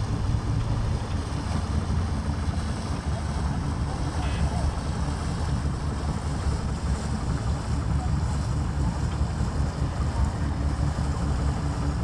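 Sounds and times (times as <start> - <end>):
water washing along hull: 0.0 - 12.0.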